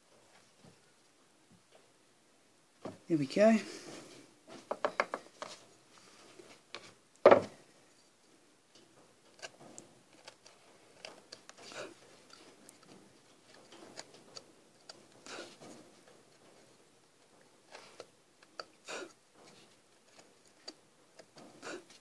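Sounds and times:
chisel ticking and scraping wood: 0:09.3 - 0:16.4, 0:19.4 - 0:22.0.

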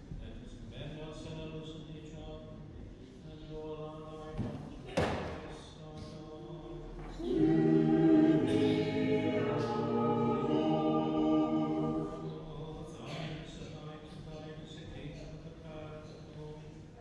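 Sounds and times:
choir singing in harmony: 0:07.0 - 0:12.9.

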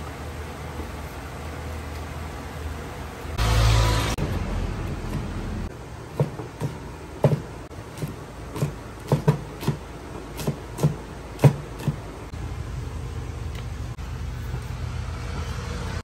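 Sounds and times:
cleaver chopping on wooden board: 0:06.1 - 0:12.0.

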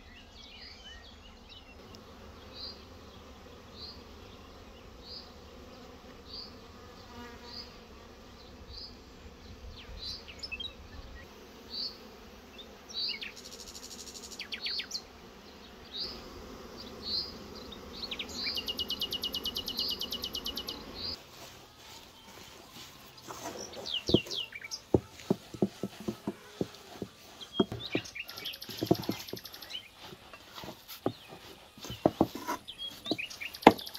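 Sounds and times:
bees humming: 0:01.2 - 0:33.9
small bird chirping and trilling: 0:17.1 - 0:21.2, 0:23.1 - 0:26.1, 0:27.3 - 0:30.2, 0:31.1 - 0:33.9.

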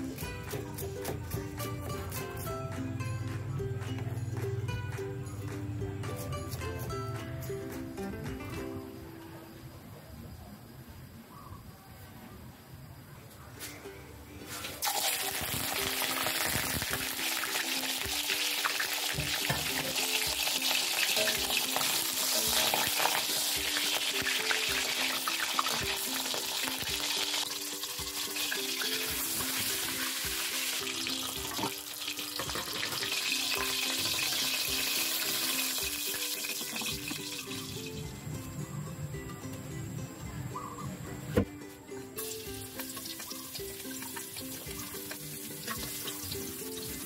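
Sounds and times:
background music melody: 0:00.0 - 0:10.6, 0:13.4 - 0:47.0
fish frying in hot oil: 0:14.8 - 0:37.7, 0:42.3 - 0:47.0.

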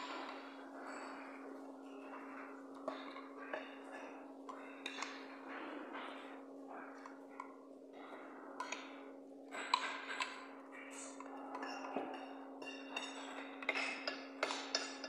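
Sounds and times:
steady low hum: 0:00.0 - 0:15.0
spoon clinking against ceramic bowl: 0:11.2 - 0:15.0.

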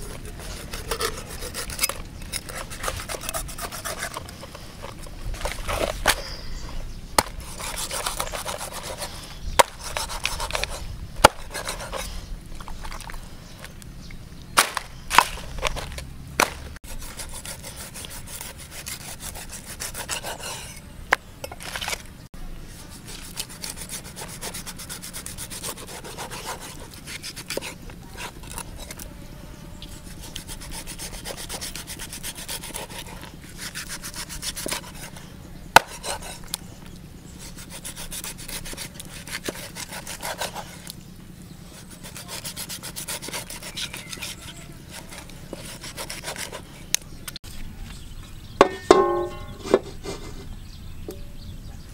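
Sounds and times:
cleaver scraping through flesh: 0:00.0 - 0:06.4, 0:07.2 - 0:13.2, 0:14.6 - 0:20.8, 0:22.8 - 0:29.1, 0:29.9 - 0:36.7, 0:37.4 - 0:41.0, 0:41.7 - 0:46.7.

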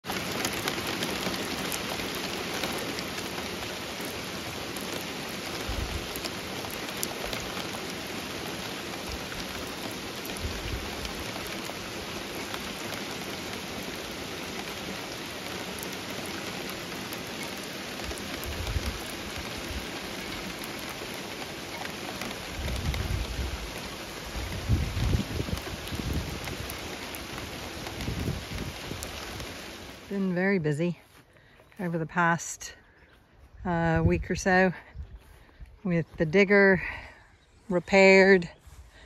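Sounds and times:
torrential rain hissing: 0:00.0 - 0:30.9.

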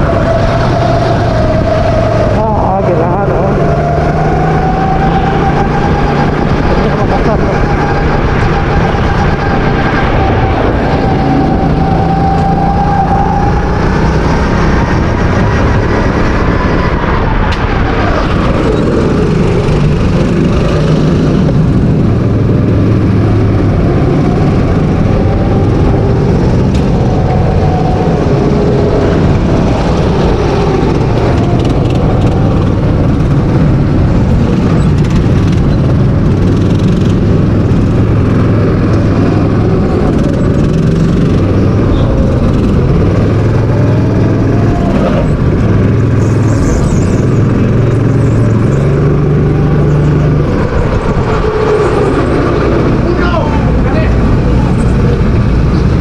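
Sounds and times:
go-kart engine revving: 0:00.0 - 0:56.0.

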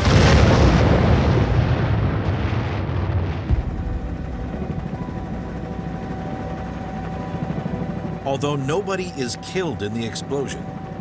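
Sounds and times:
explosion deep rumble: 0:00.0 - 0:05.2.

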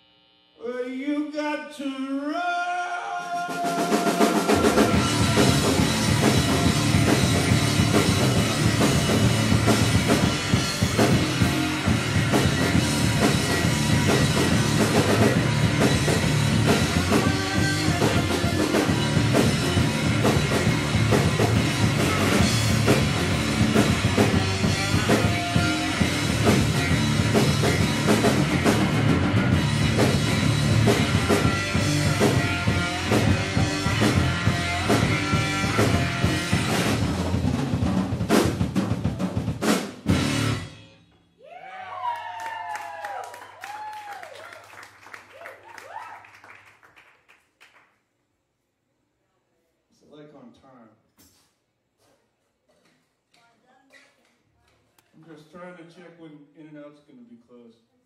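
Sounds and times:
rock band playing: 0:03.4 - 0:41.1.

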